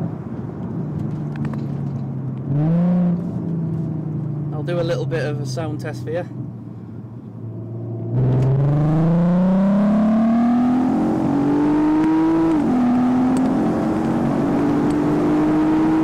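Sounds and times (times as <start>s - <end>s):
car engine revving: 7.6s - 16.0s.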